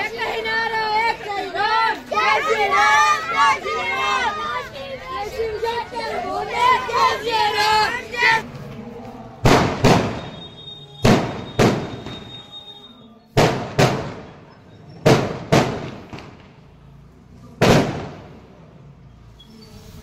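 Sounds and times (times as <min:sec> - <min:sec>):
fireworks banging: 0:09.4 - 0:12.6, 0:13.4 - 0:17.0, 0:17.6 - 0:18.5.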